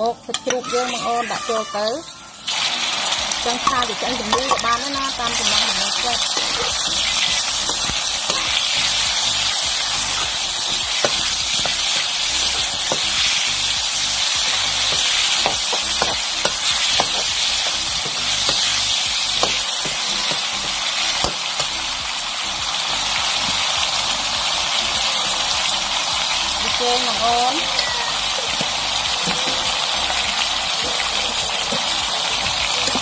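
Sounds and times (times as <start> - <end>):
meat sizzling in hot oil: 0.0 - 33.0
metal spatula scraping wok: 3.5 - 21.7.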